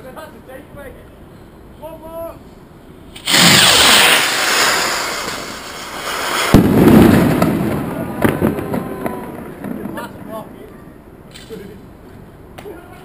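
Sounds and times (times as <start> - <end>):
firework hiss: 3.1 - 9.5
firework bang: 3.2 - 10.3.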